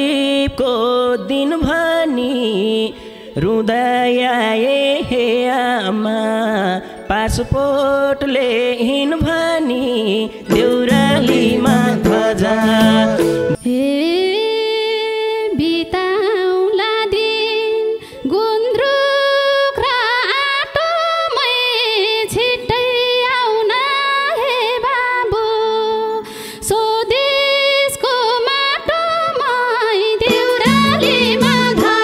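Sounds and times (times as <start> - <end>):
woman singing folk song: 0.0 - 32.0
instrumental accompaniment: 10.4 - 13.6, 30.2 - 32.0.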